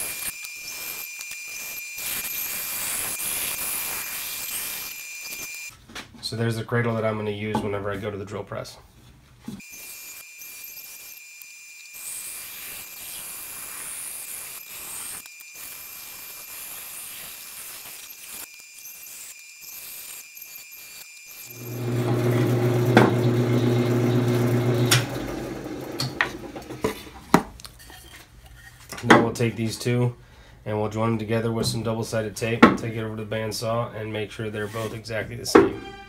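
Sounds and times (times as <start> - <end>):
bandsaw cutting wood: 0.0 - 5.7, 9.6 - 27.2.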